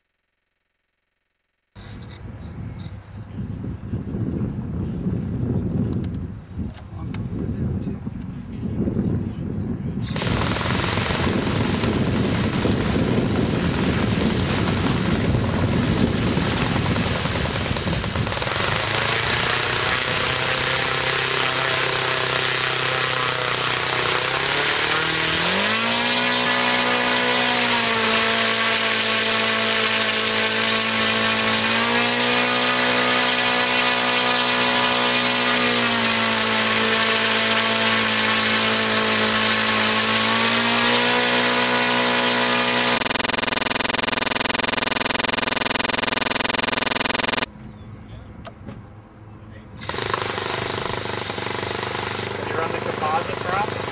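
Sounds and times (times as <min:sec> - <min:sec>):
model glow engine running: 0:10.1 - 0:40.2, 0:41.2 - 0:47.5, 0:49.9 - 0:53.9.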